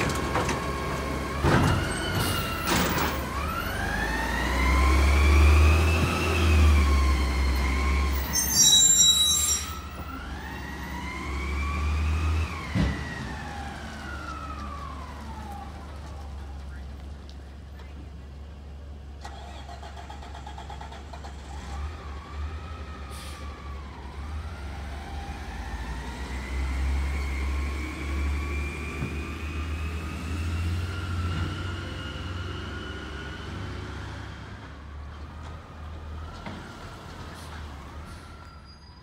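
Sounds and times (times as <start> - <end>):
low truck engine rumble: 9.9 - 38.6.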